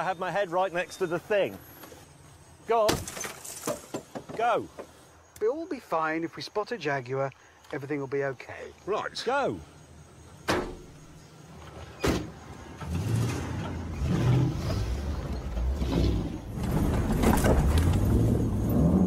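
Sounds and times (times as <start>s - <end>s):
vehicle engines rumbling: 9.6s - 19.0s
car door slamming: 10.4s - 10.9s.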